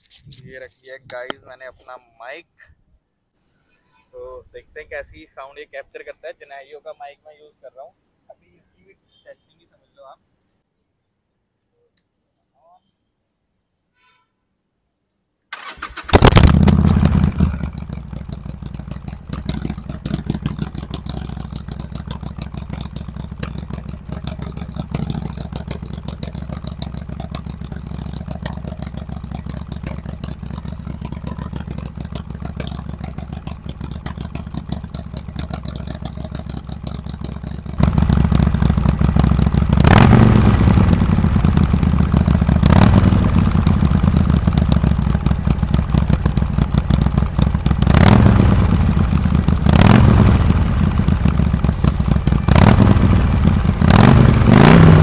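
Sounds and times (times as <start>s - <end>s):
electric starter cranking: 15.5s - 55.0s
motorcycle engine idling and revving: 15.6s - 55.0s.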